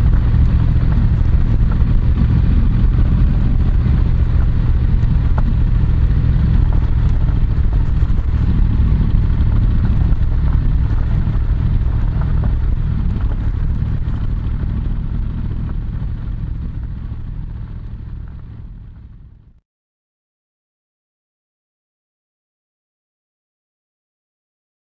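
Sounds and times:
motorcycle engine running: 0:00.0 - 0:19.6.

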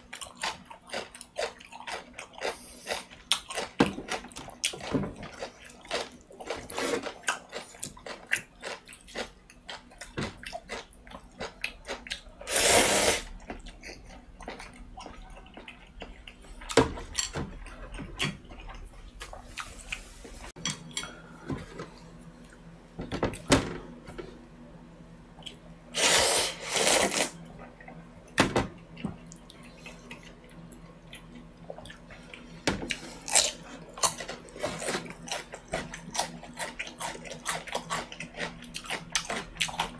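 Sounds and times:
chewing: 0:00.1 - 0:12.3, 0:28.9 - 0:39.9
loud slurping: 0:12.5 - 0:13.3, 0:26.0 - 0:27.4.

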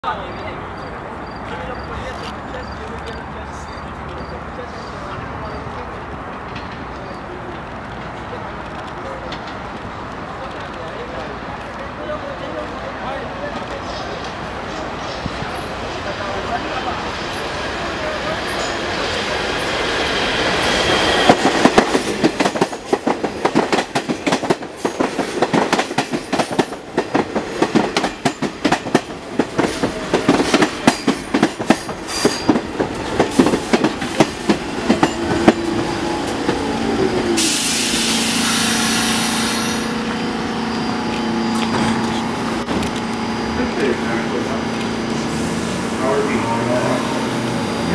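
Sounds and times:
train steady hum: 0:00.0 - 0:47.9
train wheels clacking over rails: 0:01.7 - 0:47.9
falling whine of train slowing: 0:12.6 - 0:47.9
loud hiss of air: 0:37.3 - 0:43.4, 0:45.1 - 0:46.1.

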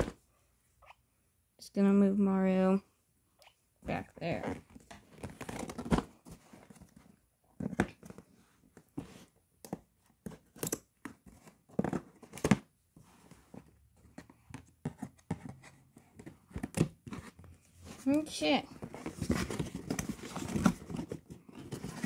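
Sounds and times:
cardboard box rustling and scraping: 0:18.8 - 0:22.0.

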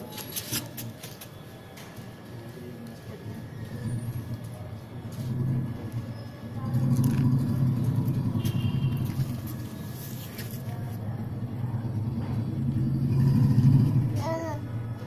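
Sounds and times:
vehicle engine rumble: 0:03.2 - 0:15.0.

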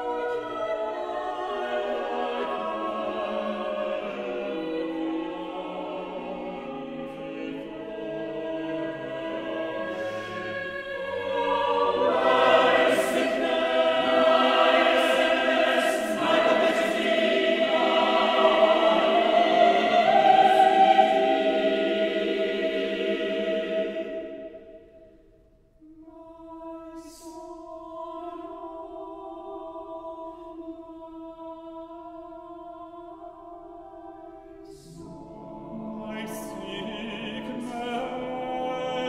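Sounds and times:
choir singing: 0:00.0 - 0:39.0.

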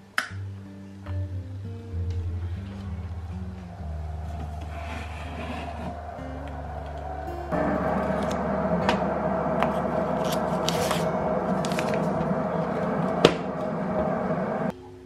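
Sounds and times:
electric kettle humming: 0:03.4 - 0:14.7.

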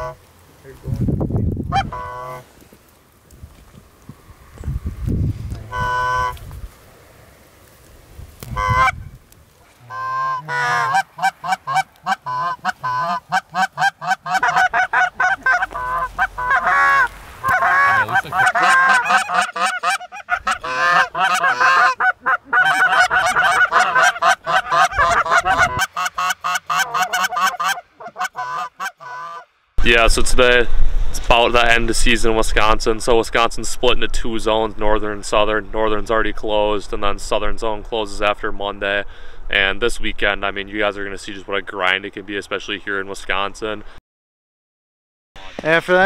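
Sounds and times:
geese honking: 0:00.0 - 0:00.2, 0:01.7 - 0:02.5, 0:05.6 - 0:06.4, 0:08.5 - 0:09.0, 0:09.7 - 0:29.5.

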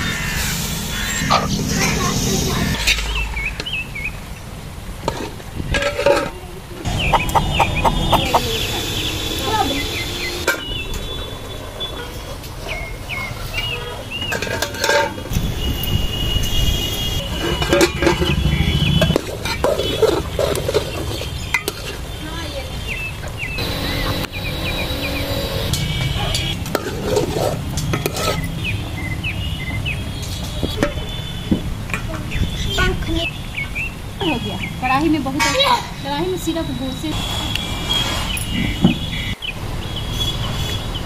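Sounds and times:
low rumble: 0:06.9 - 0:09.1
bird chirps: 0:06.9 - 0:11.2, 0:23.0 - 0:25.7.

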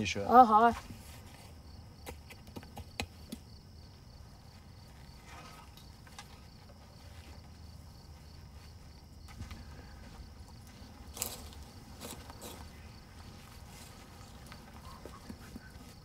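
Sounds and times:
faint high insect chirring: 0:00.0 - 0:16.0
gloved hands tapping soil: 0:02.0 - 0:03.5.

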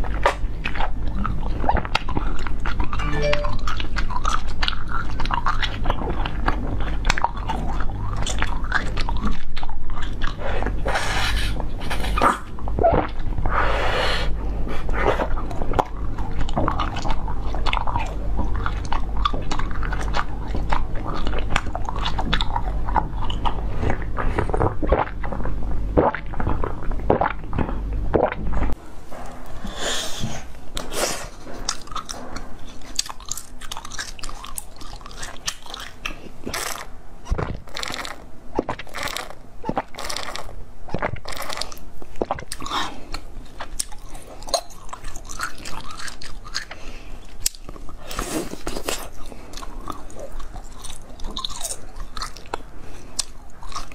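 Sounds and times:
biting and chewing food: 0:00.0 - 0:13.6, 0:14.2 - 0:29.6, 0:30.2 - 0:53.9
jelly crunches: 0:31.7 - 0:53.9.

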